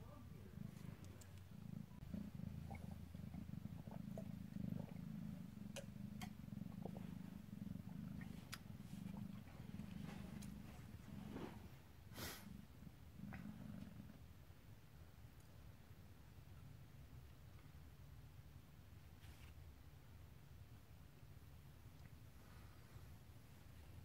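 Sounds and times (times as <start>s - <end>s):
cat purring: 0.0s - 24.0s
faint clicks: 0.7s - 1.5s, 5.6s - 6.4s.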